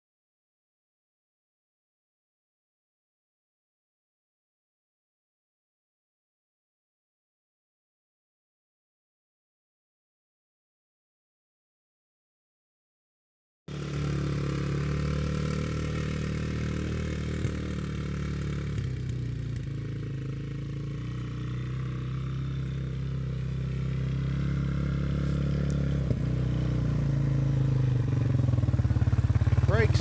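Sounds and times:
atv engine running: 0:13.7 - 0:30.0.

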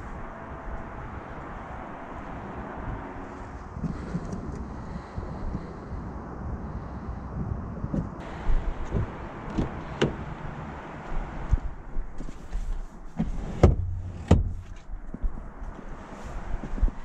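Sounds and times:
car door opening clicks: 0:08.8 - 0:10.3
thuds of person climbing in: 0:11.5 - 0:15.2.

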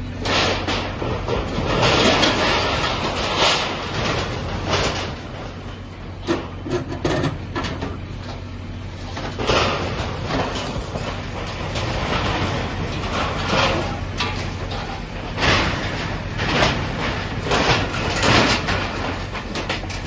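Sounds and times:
diesel engine running: 0:00.0 - 0:20.0
metal sheeting crashing and scraping: 0:00.2 - 0:05.4, 0:09.4 - 0:20.0.

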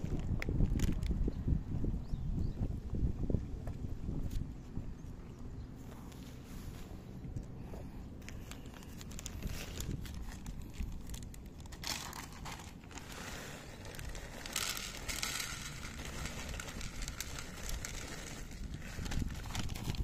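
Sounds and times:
plastic bag crinkling: 0:08.2 - 0:20.0
kibble pouring into dish: 0:12.4 - 0:20.0.

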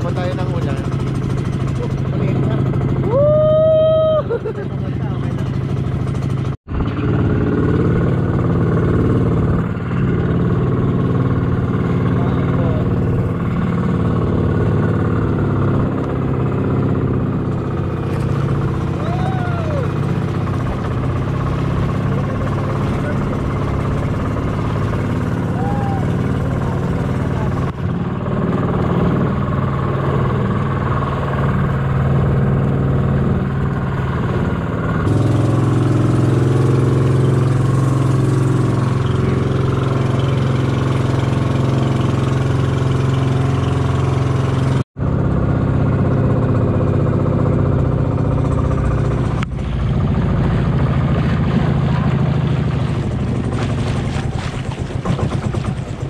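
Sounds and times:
boat engine running: 0:00.0 - 0:56.0.

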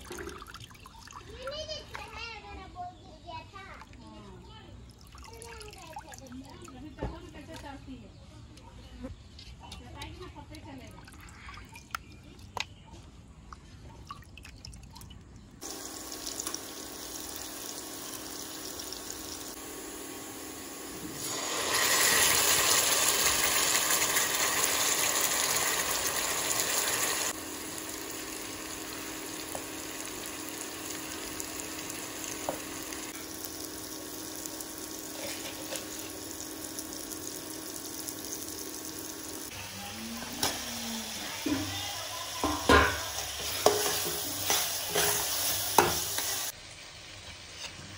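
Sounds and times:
spices sizzling in a pan: 0:15.6 - 0:47.9.

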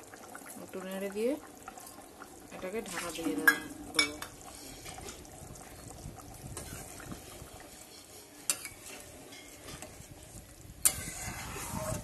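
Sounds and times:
low sizzle of boiling gravy: 0:00.0 - 0:12.0
metal spatula stirring curry: 0:10.8 - 0:12.0.

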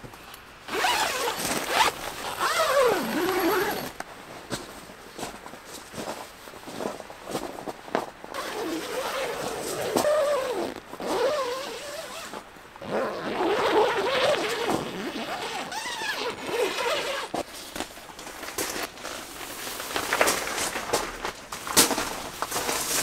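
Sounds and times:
plastic film rustling and squeaking: 0:00.7 - 0:04.0, 0:08.4 - 0:23.0
plastic film crinkling and ticking: 0:16.8 - 0:23.0.

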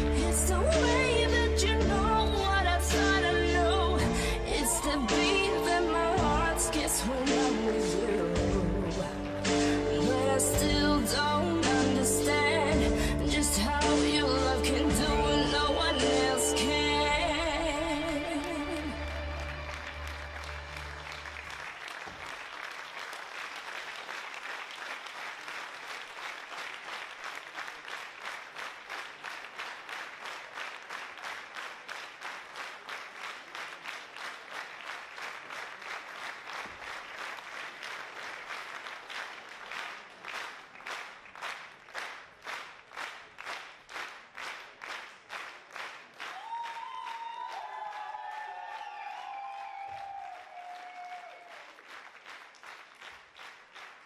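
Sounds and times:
music: 0:00.0 - 0:21.6
audience clapping in unison: 0:00.0 - 0:54.0.

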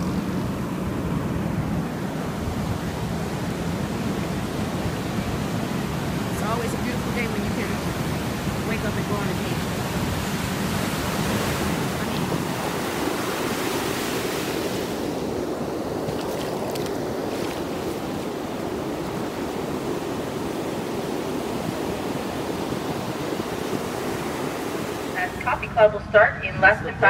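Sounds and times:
ocean surf breaking: 0:00.0 - 0:27.0.

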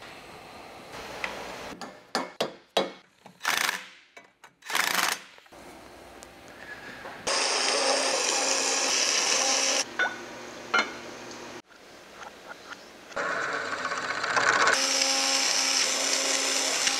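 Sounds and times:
loud hissing machine: 0:07.3 - 0:09.8.

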